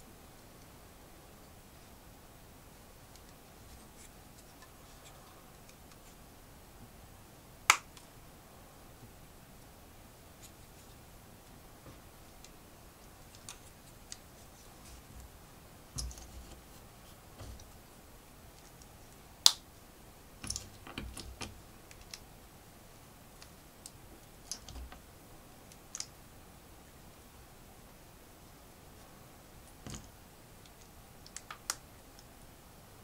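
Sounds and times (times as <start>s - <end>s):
plastic bricks clicking: 20.4s - 22.2s.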